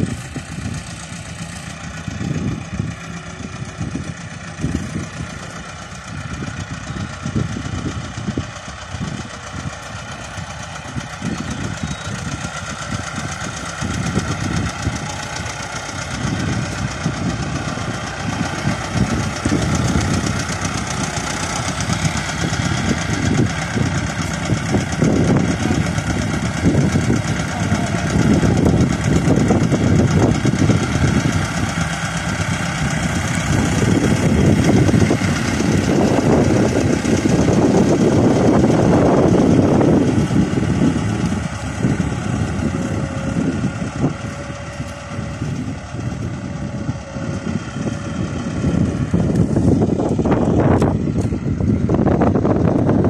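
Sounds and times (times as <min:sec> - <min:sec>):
tractor diesel engine running: 0:00.0 - 0:53.0.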